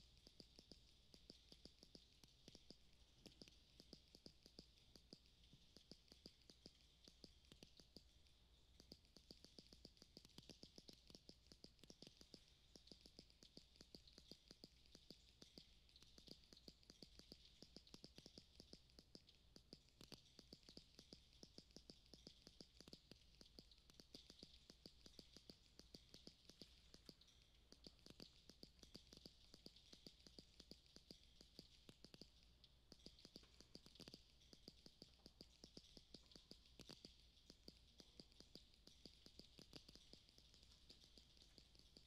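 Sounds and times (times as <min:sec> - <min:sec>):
fast uneven clicking: 0:00.0 - 0:42.0.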